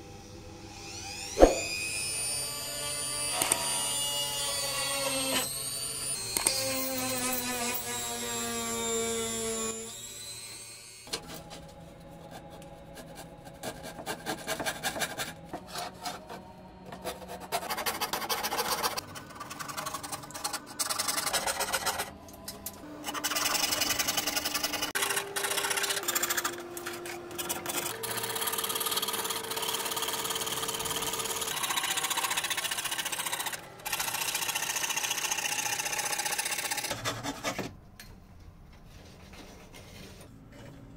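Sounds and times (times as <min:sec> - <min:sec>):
rasping strokes on wood: 0:12.3 - 0:22.0.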